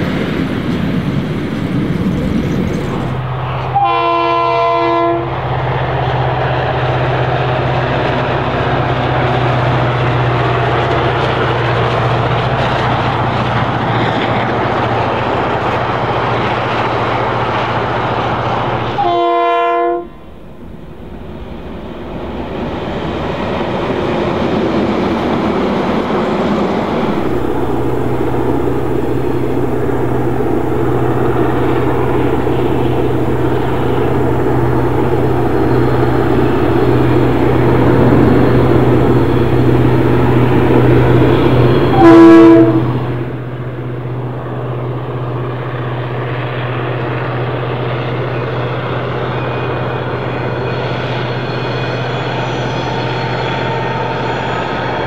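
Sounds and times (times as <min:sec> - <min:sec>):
diesel locomotive engine hum: 0:00.0 - 0:55.0
locomotive horn blast: 0:03.0 - 0:05.6, 0:18.8 - 0:20.5, 0:27.0 - 0:43.8.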